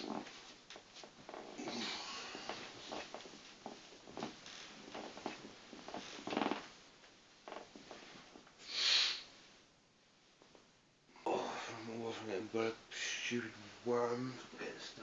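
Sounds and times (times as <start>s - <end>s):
bedding movement: 0.0s - 8.5s
loud breathy exhale: 8.6s - 9.3s.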